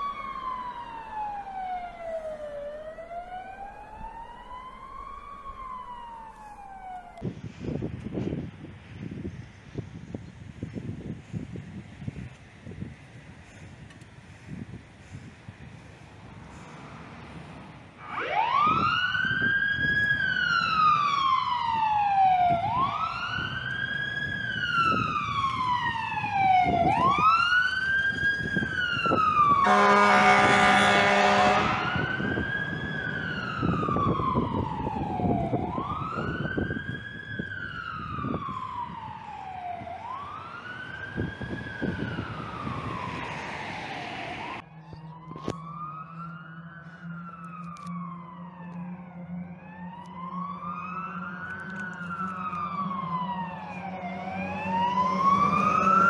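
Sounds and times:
fire engine siren wailing: 0.0s - 8.3s, 9.5s - 56.0s
loud horn blast: 29.6s - 32.4s.

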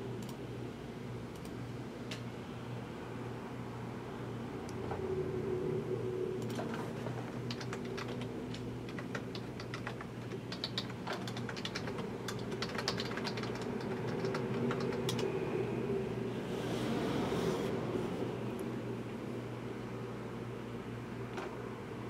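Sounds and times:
computer keyboard typing: 6.4s - 15.3s.

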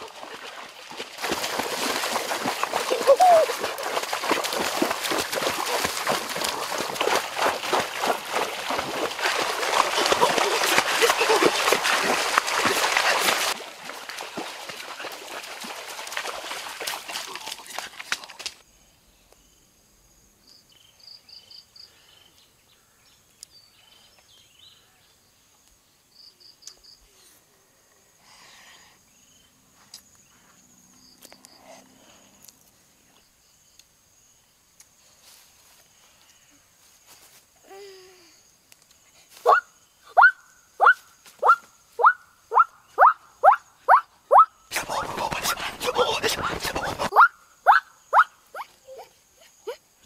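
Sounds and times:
water splashing from wading: 0.0s - 18.6s.

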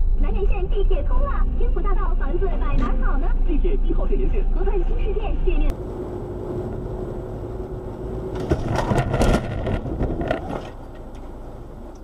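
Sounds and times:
car engine and road noise: 0.0s - 12.0s
car collision knocks and clatter: 8.3s - 11.0s.

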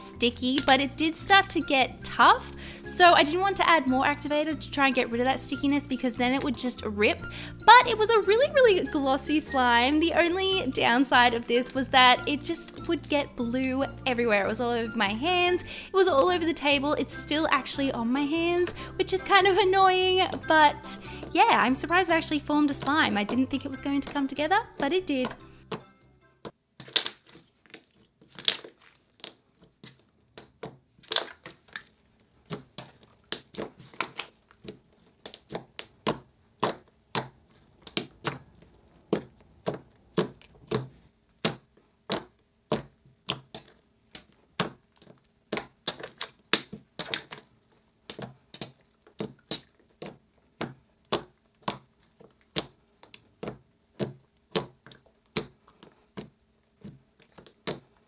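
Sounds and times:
slime clicking and popping: 20.2s - 58.0s.

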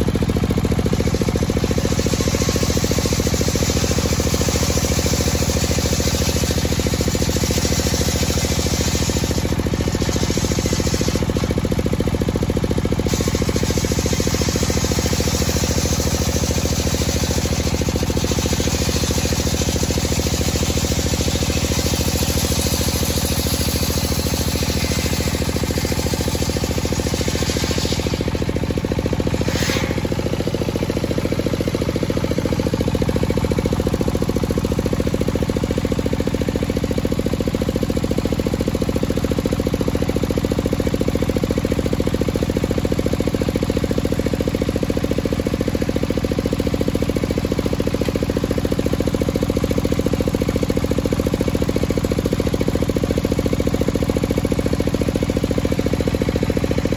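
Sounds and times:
circular saw cutting wood: 0.0s - 36.8s
saw motor humming: 0.0s - 38.7s.

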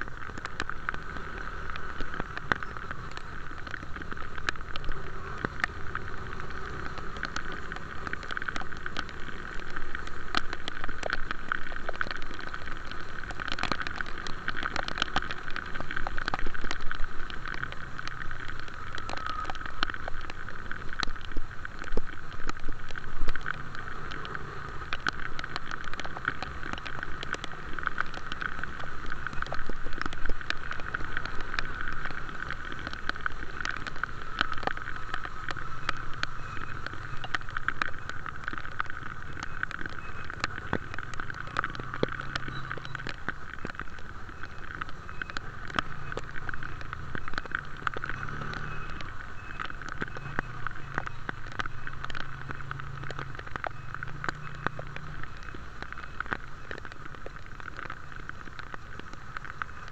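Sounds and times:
raindrops ticking on microphone: 0.0s - 59.9s
vehicle running hum: 45.1s - 56.2s.

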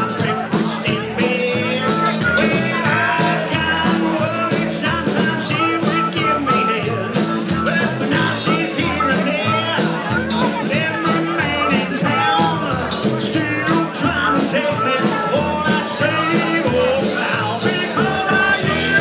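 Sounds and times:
drums keeping a beat: 0.0s - 19.0s
electric guitar: 0.0s - 19.0s
harmonica lead: 0.0s - 19.0s
upright bass: 0.0s - 19.0s.

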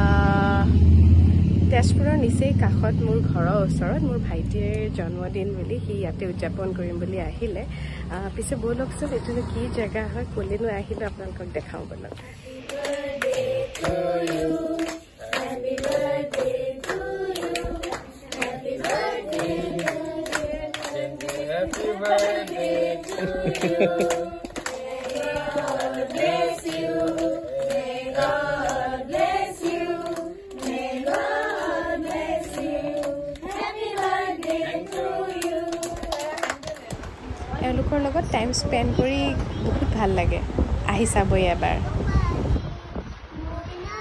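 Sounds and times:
group singing: 12.2s - 37.2s
hands clapping in time: 12.5s - 37.2s.

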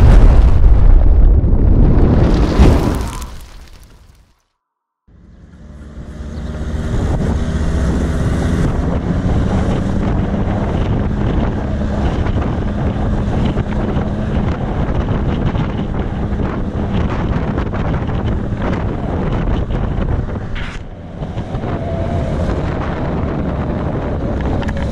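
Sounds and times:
vehicle engine humming: 5.1s - 17.0s, 17.8s - 24.9s
tyres on road: 5.1s - 24.9s
wind buffeting microphone: 6.6s - 24.9s.

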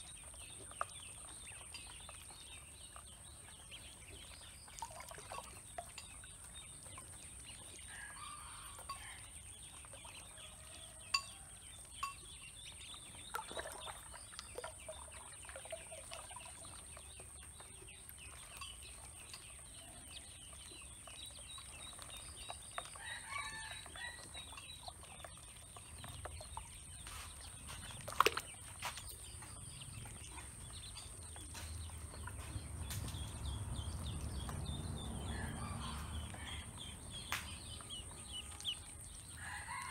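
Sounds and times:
ducklings peeping: 11.8s - 39.9s.

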